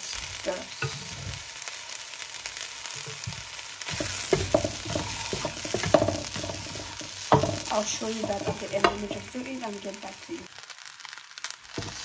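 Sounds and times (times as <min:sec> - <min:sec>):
vegetables sizzling in a frying pan: 0:00.0 - 0:12.0
spatula scraping and knocking pan: 0:00.8 - 0:01.5, 0:02.9 - 0:09.6.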